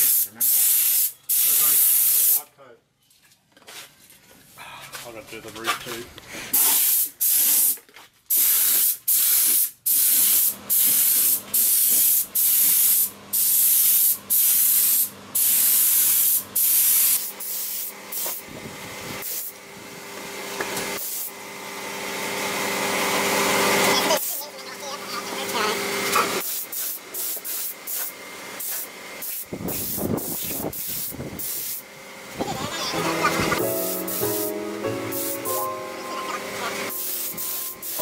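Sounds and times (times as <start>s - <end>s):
paint spray gun hissing: 0.0s - 2.4s, 6.5s - 18.5s, 19.2s - 19.6s, 21.0s - 21.4s, 26.4s - 31.8s, 33.5s - 35.6s, 36.9s - 38.0s.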